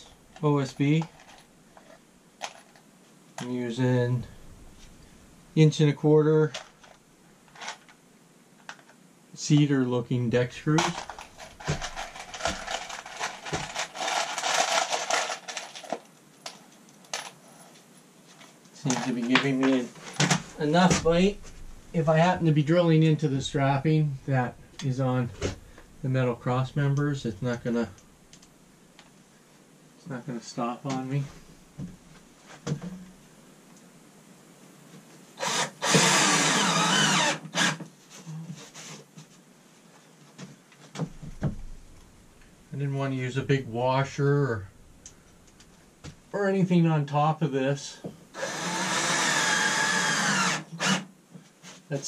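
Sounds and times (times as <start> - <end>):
cordless drill driving screw: 35.4 - 37.8, 48.4 - 51.1.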